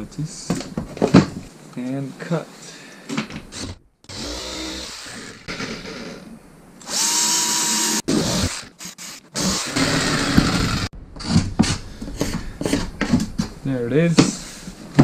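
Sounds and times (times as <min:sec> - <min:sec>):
cordless drill boring into wood: 0:04.1 - 0:05.7, 0:06.8 - 0:10.9.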